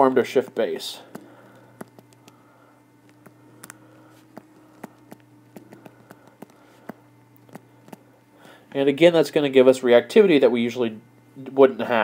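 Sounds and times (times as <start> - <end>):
faint steady hum: 0.0 - 12.0
stylus clicking on tablet screen: 1.8 - 2.4, 3.0 - 8.0.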